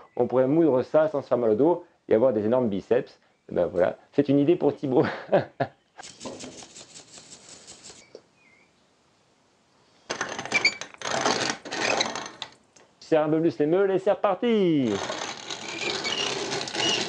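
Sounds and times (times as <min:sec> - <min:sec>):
dry grain rattling in steel sieve: 0:06.0 - 0:08.0
short metallic squeaks: 0:10.5 - 0:12.4, 0:15.4 - 0:17.0.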